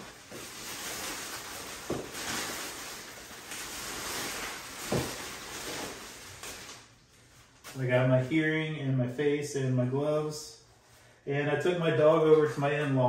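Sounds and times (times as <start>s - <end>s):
plastic sheeting rustling: 0.0s - 8.4s.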